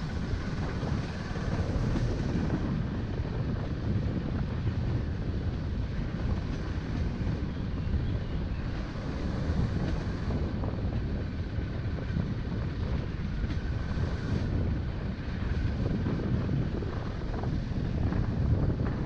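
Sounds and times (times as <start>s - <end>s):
wind noise on microphone: 0.0s - 19.0s.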